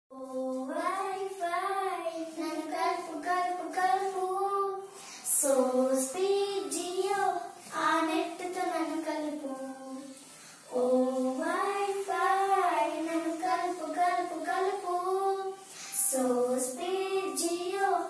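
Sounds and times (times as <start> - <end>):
girls singing together: 0.1 - 18.0.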